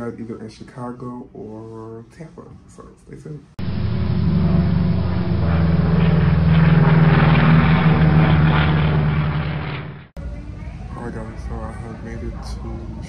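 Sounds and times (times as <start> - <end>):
propeller airplane engine drone: 3.6 - 10.2.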